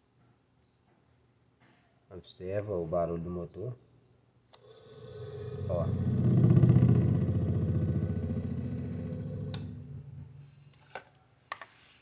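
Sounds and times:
clicks: 0:09.4 - 0:09.8.

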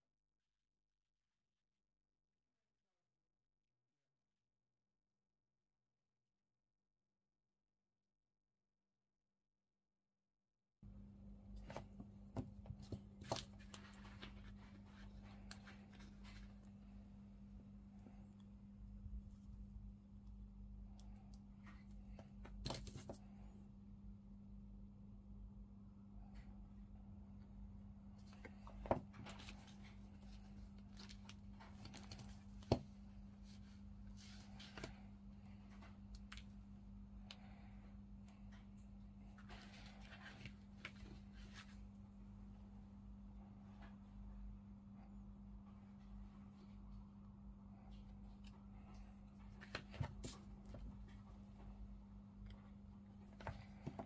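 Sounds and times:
low electrical hum: 0:10.8 - 0:54.0.

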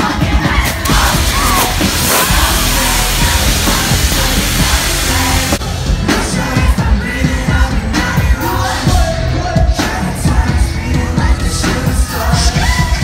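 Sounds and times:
amplified singing: 0:00.0 - 0:13.0
crowd yelling: 0:00.6 - 0:05.8
live band playing: 0:00.6 - 0:13.0.

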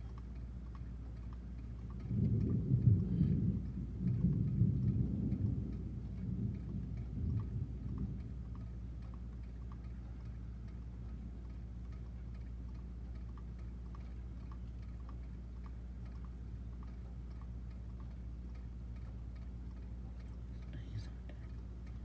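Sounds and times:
faint irregular ticking: 0:00.0 - 0:22.0
steady low hum: 0:00.0 - 0:22.0
thunder rumble: 0:02.0 - 0:08.6.

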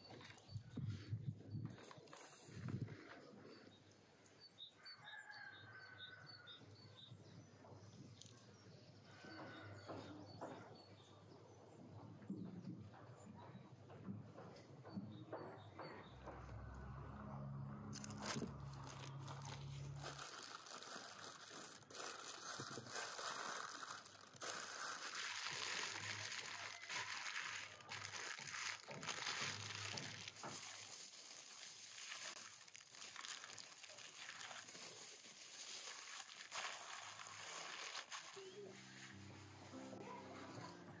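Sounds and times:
baking paper crinkling and rustling: 0:00.0 - 0:03.8, 0:17.9 - 0:39.2.

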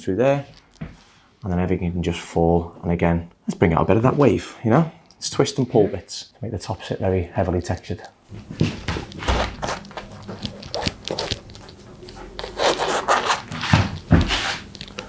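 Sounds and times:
fingers rustling through hair: 0:08.3 - 0:15.0.

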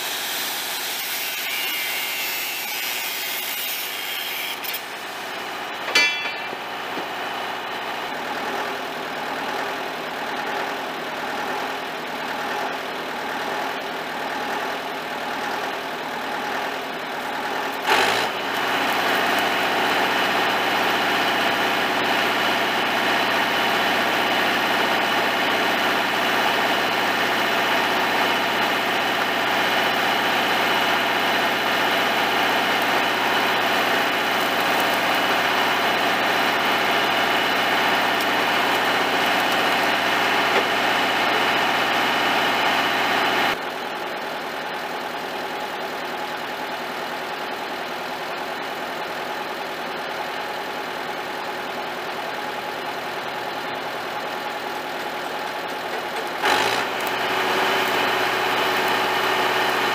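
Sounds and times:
welder engine running: 0:00.0 - 0:59.9.

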